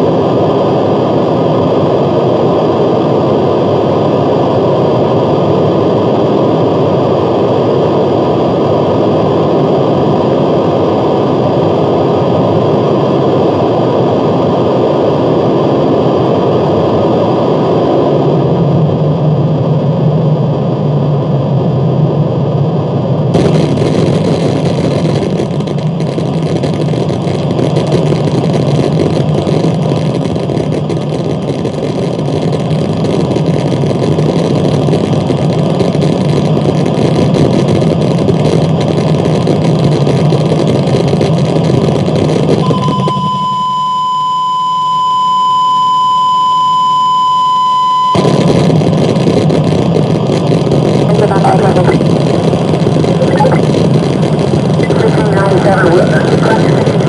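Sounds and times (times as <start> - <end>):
distorted noise wall: 0.0 - 57.0
steady high beep tone: 42.6 - 48.4.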